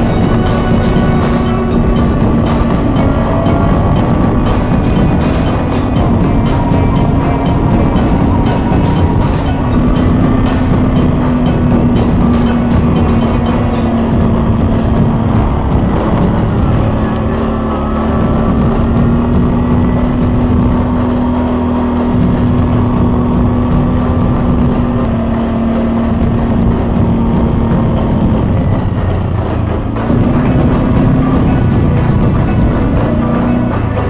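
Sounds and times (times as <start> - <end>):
atv engine cruising: 0.0 - 34.0.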